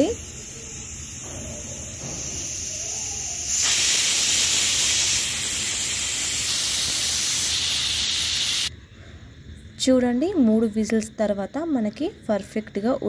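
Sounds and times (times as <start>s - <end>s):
pressure cooker whistling: 0.0s - 8.7s.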